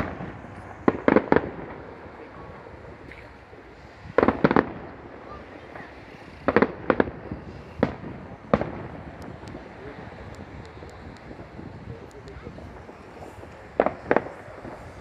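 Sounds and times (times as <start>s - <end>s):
firework shells bursting: 0.0s - 2.1s, 3.0s - 15.0s.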